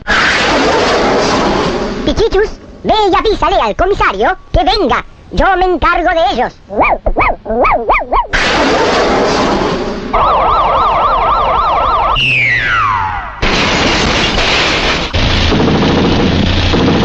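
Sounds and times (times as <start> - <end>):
warbling siren-like whistle: 10.1 - 13.4
steeply falling whistle: 10.2 - 13.4.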